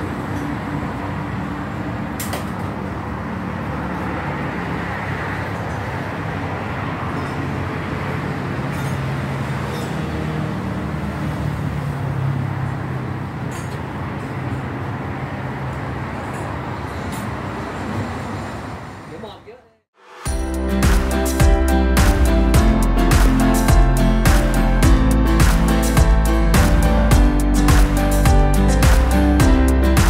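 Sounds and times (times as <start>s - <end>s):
heavy vehicle engine hum: 0.0s - 19.1s, 20.1s - 30.0s
road traffic noise: 0.0s - 30.0s.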